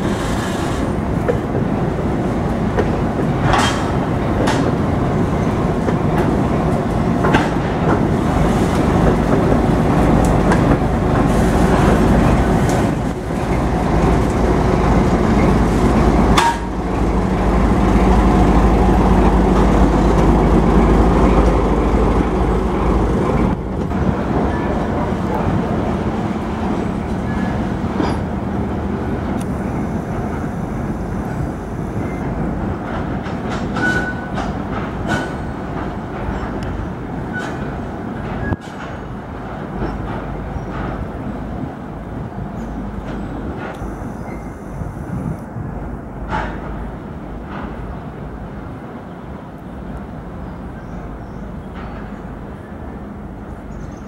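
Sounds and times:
locomotive diesel engine running: 13.6s - 33.7s
wheels clicking over rail joints: 32.2s - 41.2s.

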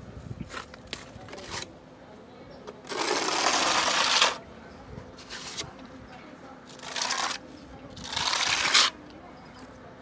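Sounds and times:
trowel scraping cement wall: 2.8s - 4.4s, 6.7s - 9.0s.

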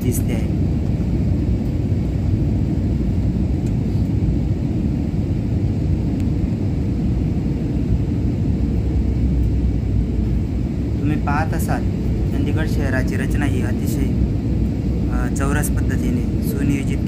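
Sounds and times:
airliner cabin engine rumble: 0.0s - 17.0s
faint steady hum: 0.0s - 17.0s.

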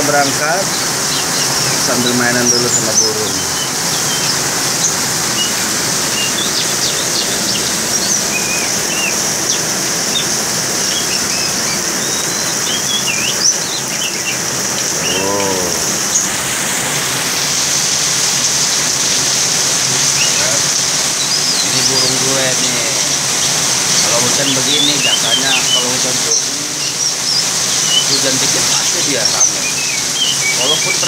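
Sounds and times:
heavy rain: 0.0s - 31.0s
low rising and falling call: 0.0s - 31.0s
bird whistled chirps: 1.1s - 14.4s, 20.0s - 31.0s.

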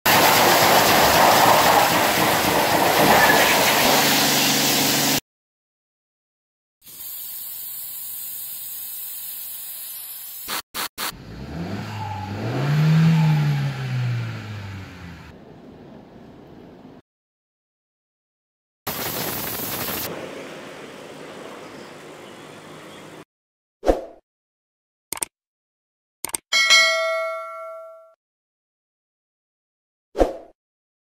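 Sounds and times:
water spraying onto car: 0.1s - 5.2s, 18.9s - 20.5s
pump sprayer hissing: 0.2s - 5.2s, 6.8s - 11.1s, 18.9s - 22.4s
car engine revving: 11.1s - 15.3s
quick clicks: 25.1s - 25.3s, 26.2s - 26.4s.

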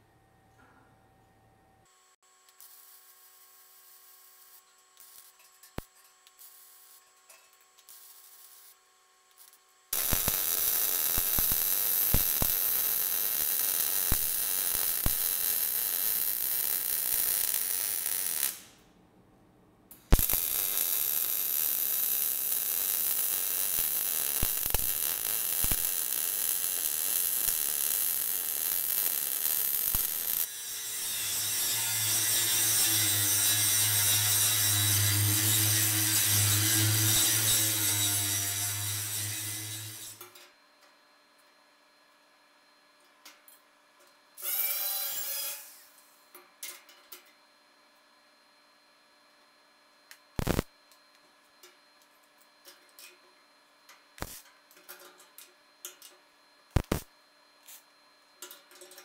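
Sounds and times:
welding arc crackling: 7.8s - 8.8s, 9.4s - 18.8s, 20.0s - 40.2s, 50.4s - 50.7s, 54.2s - 54.4s, 56.7s - 57.1s
angle grinder: 27.3s - 40.3s.

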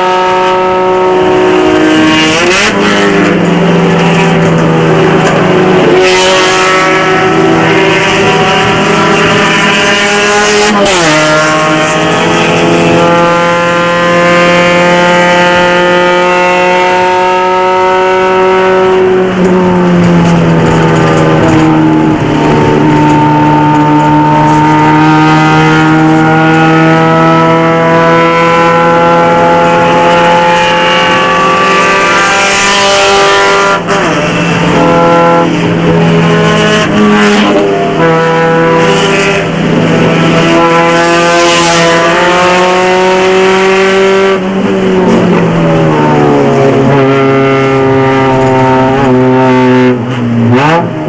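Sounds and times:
race car engine at high revs: 0.0s - 51.0s.

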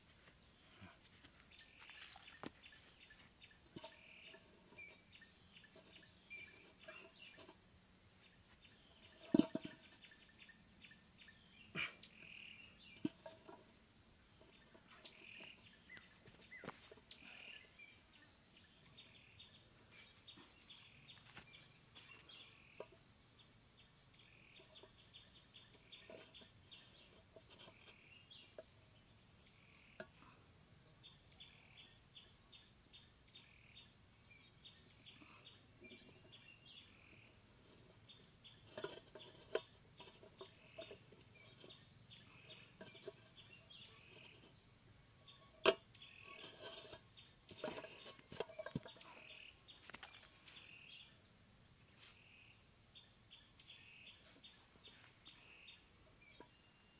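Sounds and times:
small birds chirping: 0.2s - 56.9s.

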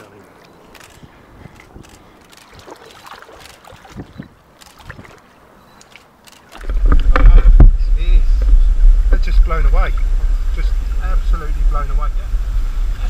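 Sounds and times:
heavy water sloshing: 0.0s - 7.4s
water lapping and splashing: 0.0s - 7.6s
wind buffeting on microphone: 0.8s - 2.8s, 3.6s - 5.2s, 6.6s - 13.0s.

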